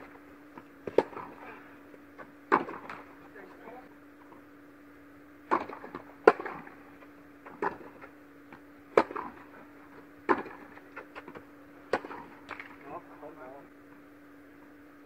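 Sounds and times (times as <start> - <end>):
tennis ball bouncing: 0.0 - 3.2, 5.4 - 12.8
low hum: 0.0 - 15.0
tennis ball struck by rackets: 0.5 - 1.4, 2.2 - 3.2, 5.4 - 12.8.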